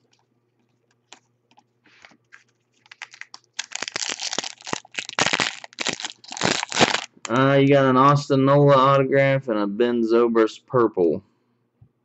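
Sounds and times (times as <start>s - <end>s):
foil wrapper crinkling: 1.9s - 7.4s.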